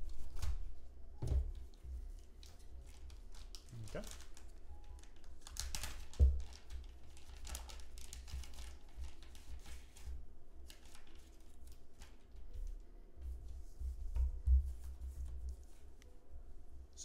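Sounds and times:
plastic bag crinkling: 2.4s - 9.7s.

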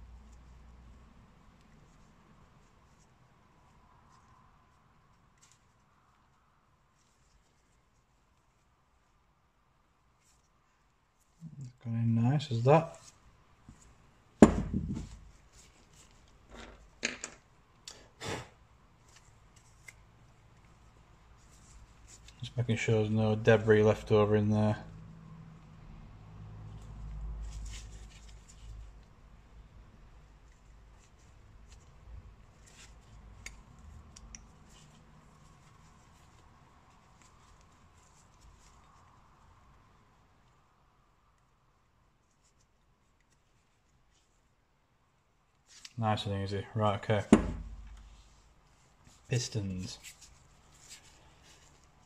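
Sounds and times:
low room hum: 0.0s - 52.0s
metal part knocking on wooden bench: 14.4s - 15.1s.

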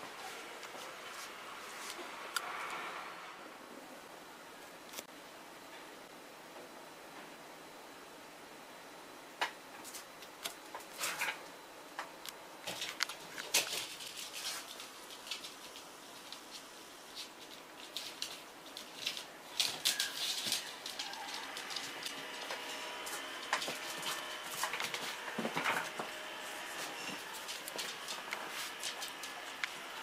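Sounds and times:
dogs scuffling: 12.7s - 30.0s
dog claws clicking on floor: 27.1s - 29.8s.

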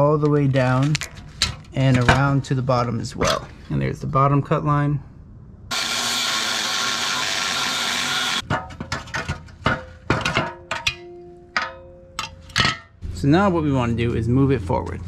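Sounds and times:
angle grinder cutting steel: 5.7s - 8.4s
steel pieces clanking together: 8.4s - 13.0s.

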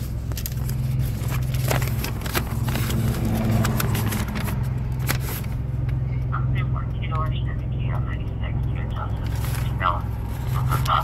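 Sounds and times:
phone handling clicks and rustles: 0.0s - 6.0s
car engine idling: 0.0s - 11.0s.

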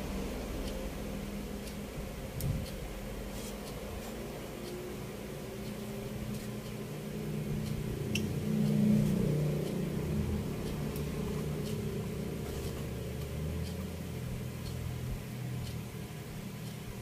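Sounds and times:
low mechanical drone: 0.0s - 17.0s.

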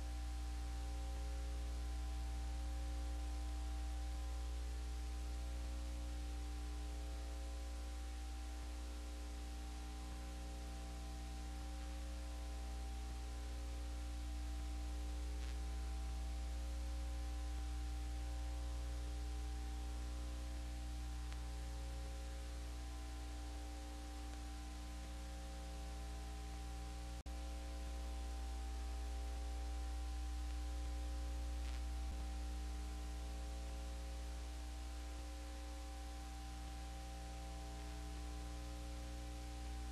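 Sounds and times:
electrical hum with hiss: 0.0s - 39.9s
click: 15.3s - 15.7s, 21.3s - 21.5s, 24.2s - 25.2s, 30.4s - 30.7s, 31.6s - 32.1s.

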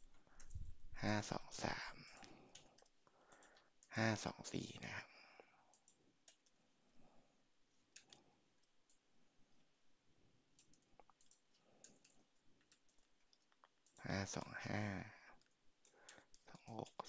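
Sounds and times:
computer mouse and keyboard clicks: 1.9s - 3.9s, 5.7s - 6.6s, 7.7s - 9.7s, 10.5s - 14.5s, 15.3s - 17.0s.

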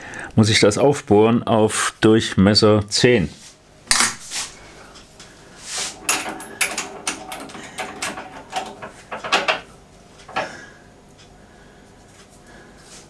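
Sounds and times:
tools clicking and knocking: 6.0s - 10.6s.

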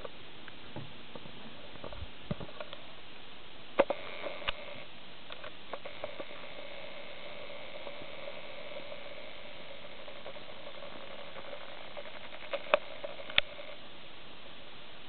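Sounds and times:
faint hiss: 0.0s - 15.0s
camcorder zoom motor whining: 3.8s - 4.9s, 5.7s - 13.8s.

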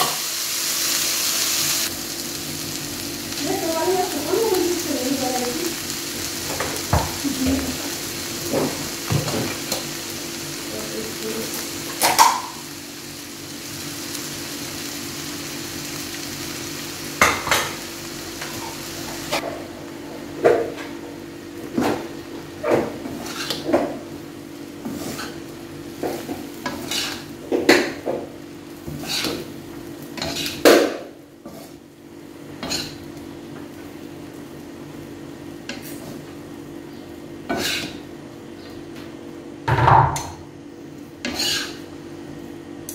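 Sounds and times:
noodles sizzling in a wok: 0.0s - 19.4s, 20.6s - 36.6s, 37.4s - 38.2s, 41.1s - 42.0s
spatulas clacking and scraping wok: 11.9s - 12.6s, 22.7s - 23.9s, 24.8s - 25.4s, 26.0s - 28.1s, 28.8s - 29.5s, 30.1s - 31.8s, 32.6s - 33.0s, 37.5s - 38.0s, 41.2s - 41.8s.

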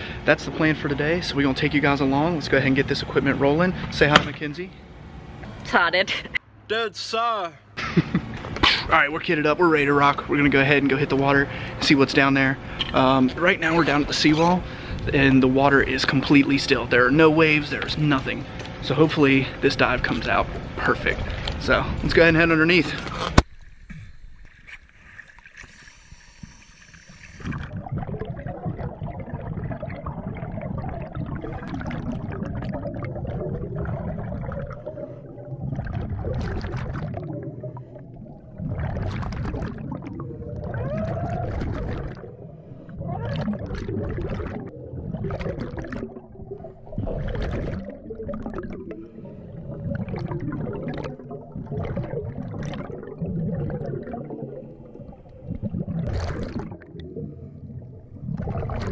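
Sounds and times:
underwater bubbling exhalations: 22.9s - 58.9s
regulator hissing breaths: 25.6s - 27.4s.

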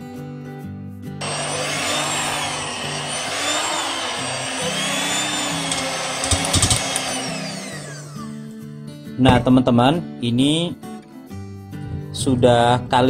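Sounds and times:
hand mixer motor whining: 1.2s - 8.5s.

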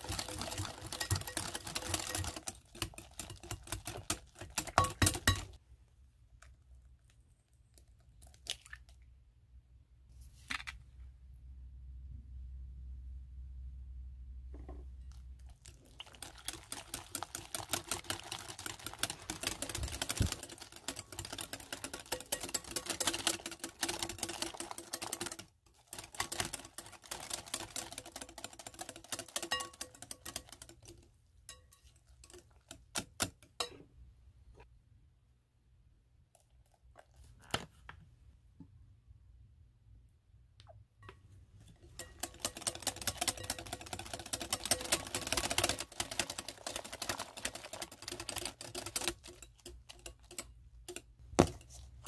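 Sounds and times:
whisk clicking against glass bowl: 0.0s - 5.6s, 16.1s - 33.8s, 41.8s - 51.6s.

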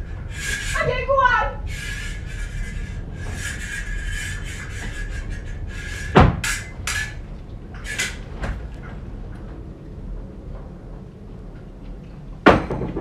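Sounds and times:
swords clashing and scraping: 5.8s - 7.2s, 7.9s - 8.2s
heavy thud: 6.1s - 6.5s.

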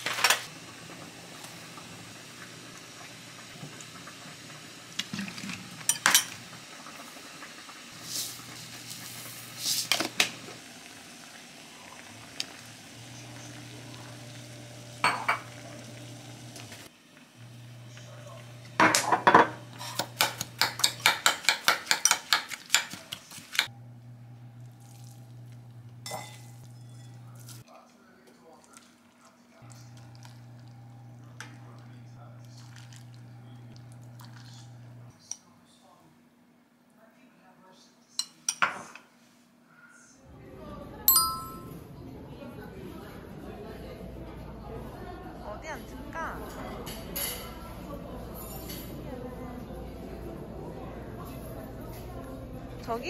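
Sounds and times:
metal utensils clinking on pans: 5.8s - 6.4s, 18.8s - 23.7s, 26.0s - 27.6s.

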